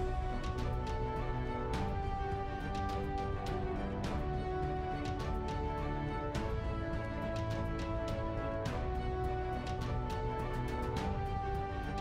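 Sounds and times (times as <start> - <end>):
instrumental music: 0.0 - 12.0.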